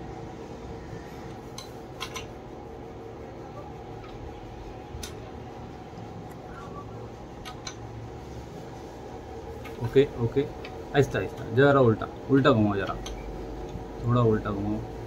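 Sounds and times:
steady background hum: 0.0 - 15.0
metallic clicks of hand tools: 1.6 - 2.3.

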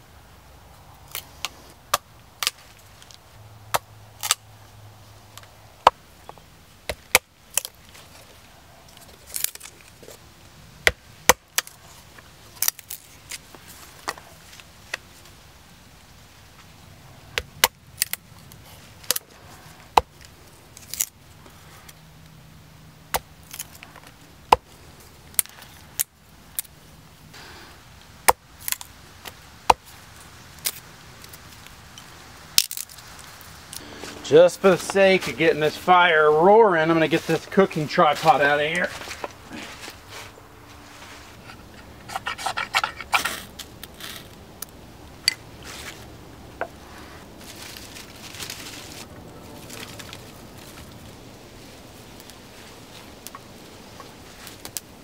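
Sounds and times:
knife scraping wood: 41.0 - 44.3.

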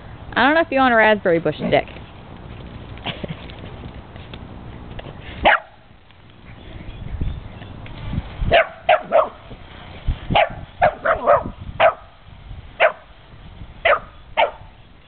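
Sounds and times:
dog barking: 5.4 - 5.8, 8.5 - 9.4, 10.4 - 12.1, 12.8 - 13.0, 13.8 - 14.7.

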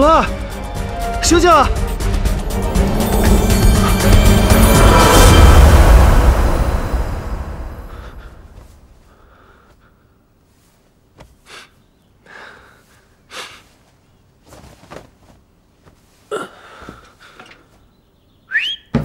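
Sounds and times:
background music: 0.0 - 8.8
man gasping for breath: 11.4 - 13.7, 16.3 - 17.4.

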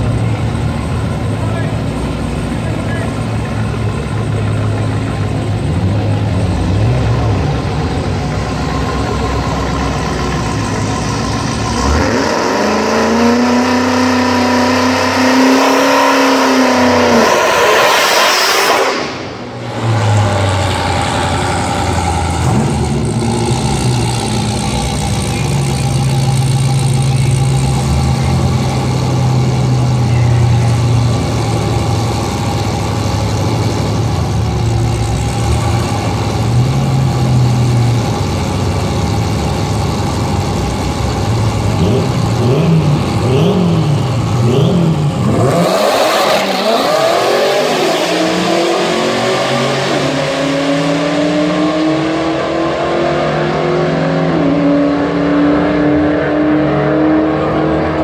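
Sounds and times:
car engines idling: 0.0 - 17.8, 18.9 - 55.3
engine revving high: 6.7 - 30.0, 41.7 - 58.0.

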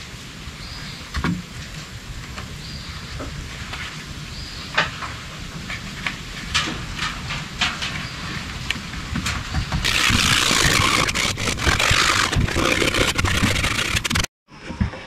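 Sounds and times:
scraping at tape residue on plastic: 9.8 - 14.3.

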